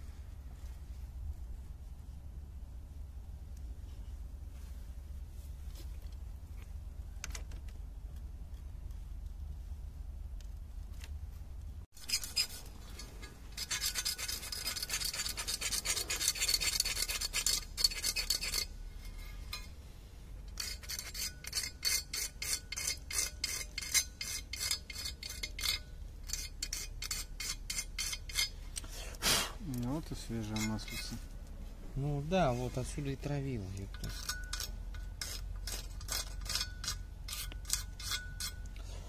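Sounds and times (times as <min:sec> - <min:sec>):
knife scraping sealant off metal: 0:12.0 - 0:19.7, 0:34.0 - 0:38.7.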